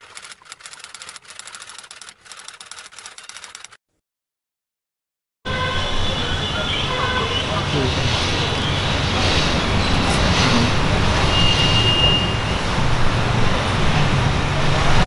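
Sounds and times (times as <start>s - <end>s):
street traffic rumble: 5.5s - 15.0s.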